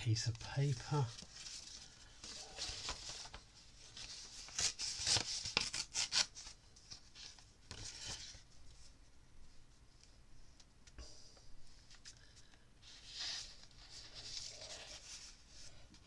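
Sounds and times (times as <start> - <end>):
paper rustling and crackling: 0.3 - 8.9.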